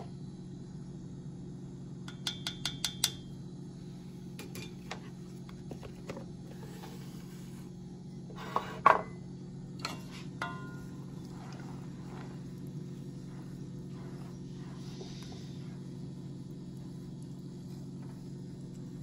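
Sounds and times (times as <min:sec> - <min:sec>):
steady low hum: 0:00.0 - 0:19.0
utensils clicking and tapping: 0:02.1 - 0:03.2
cookware clattering: 0:09.8 - 0:10.9.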